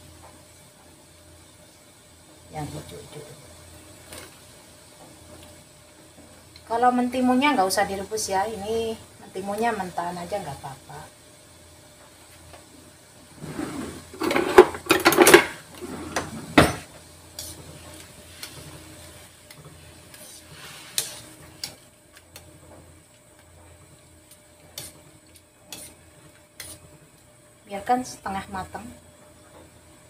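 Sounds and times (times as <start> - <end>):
metal strainer scraping in wok: 20.2 - 21.7.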